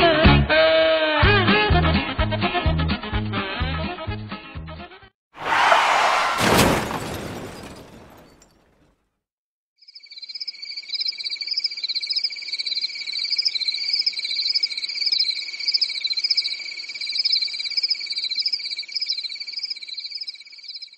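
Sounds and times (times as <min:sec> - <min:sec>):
insects and frogs trilling: 0:09.8 - 0:20.9.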